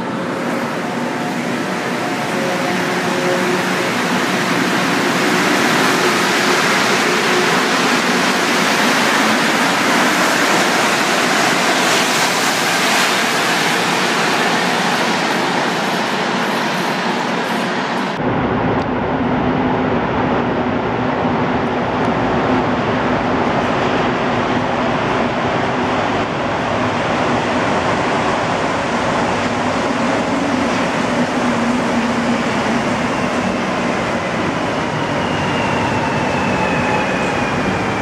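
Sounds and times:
metro train running: 0:00.0 - 0:38.0
train approaching rumble: 0:00.0 - 0:38.0.

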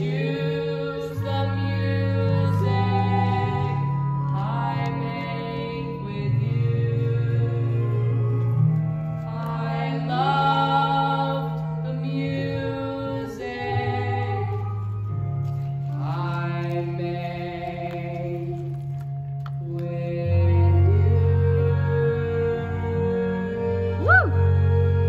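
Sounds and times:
sustained accompaniment chords: 0:00.0 - 0:25.0
person singing with vibrato: 0:19.7 - 0:25.0.

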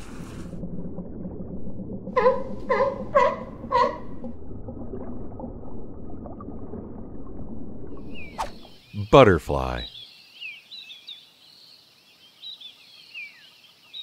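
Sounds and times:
sea lion barking: 0:02.2 - 0:04.2.

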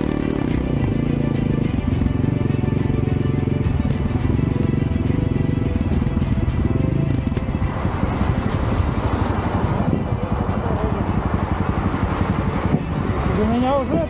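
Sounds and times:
motorcycle engine running: 0:00.0 - 0:14.0.

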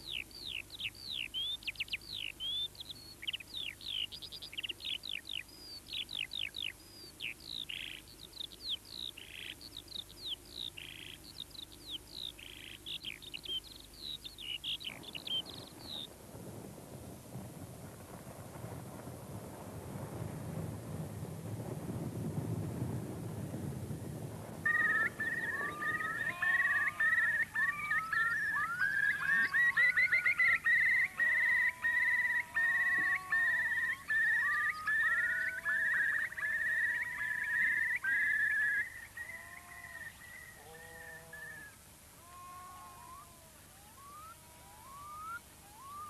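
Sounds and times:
chorus of high whistling calls: 0:24.7 - 0:41.8, 0:42.9 - 0:46.0.

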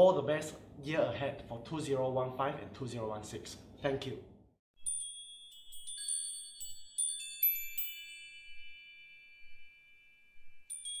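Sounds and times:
ringing chime notes: 0:04.8 - 0:11.0.

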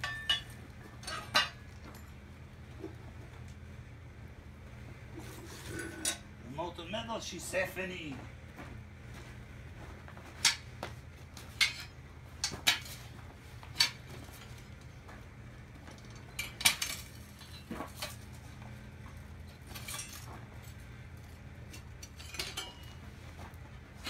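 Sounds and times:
metal tools clanking: 0:00.0 - 0:02.3, 0:11.5 - 0:13.1, 0:15.9 - 0:18.4, 0:19.4 - 0:23.2
steady low hum: 0:00.0 - 0:24.0.

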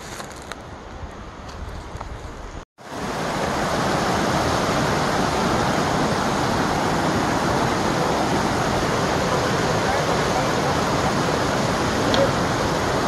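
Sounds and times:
creek rushing over rocks: 0:02.8 - 0:13.0.

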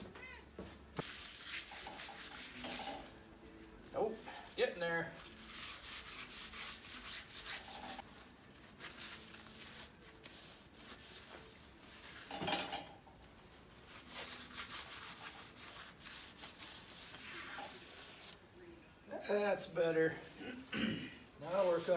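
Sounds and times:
rag rubbing on metal: 0:01.0 - 0:03.2, 0:04.0 - 0:08.0.

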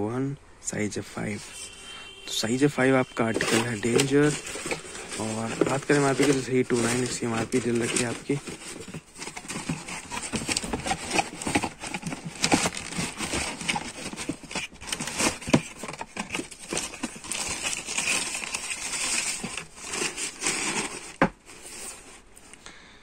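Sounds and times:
tissue paper rustling: 0:01.4 - 0:22.4
cardboard box being handled: 0:03.0 - 0:22.3
box lid closing: 0:03.2 - 0:17.0.

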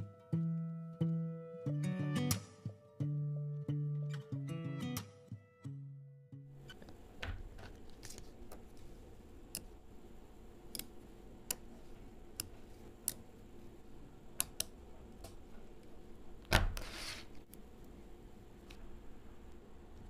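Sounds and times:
magnetic balls clicking: 0:10.6 - 0:13.3, 0:14.3 - 0:15.4.

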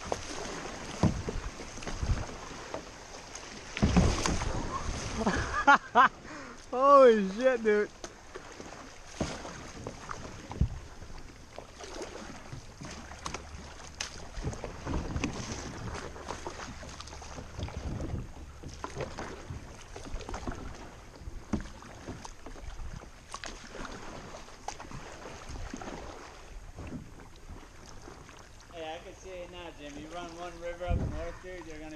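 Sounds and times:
wind buffeting the microphone: 0:00.0 - 0:02.6, 0:09.8 - 0:11.4, 0:17.4 - 0:18.8, 0:30.0 - 0:31.9
paddle strokes splashing: 0:00.0 - 0:31.9
water rushing along a hull: 0:00.0 - 0:31.9.

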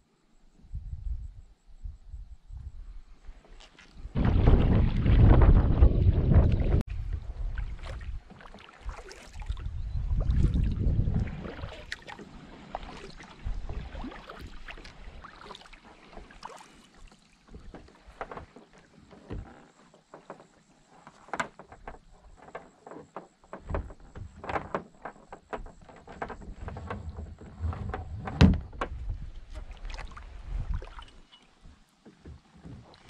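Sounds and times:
wind rumble on microphone: 0:00.5 - 0:15.4, 0:25.6 - 0:32.9
water lapping at hull: 0:03.1 - 0:33.0
kayak paddle splashing: 0:03.4 - 0:33.0.

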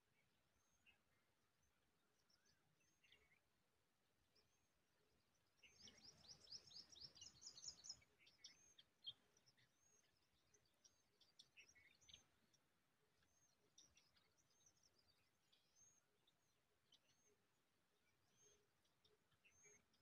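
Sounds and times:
faint high bird chirps: 0:04.3 - 0:20.0.

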